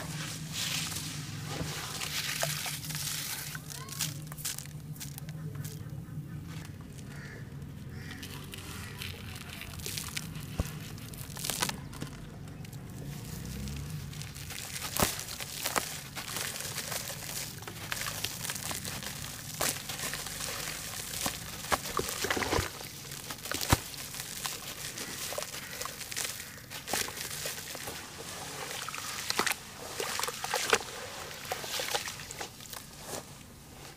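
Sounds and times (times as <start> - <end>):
hands crushing damp charcoal: 0.3 - 33.3
crumbs falling into water: 1.9 - 5.8, 8.0 - 28.0, 28.6 - 32.9.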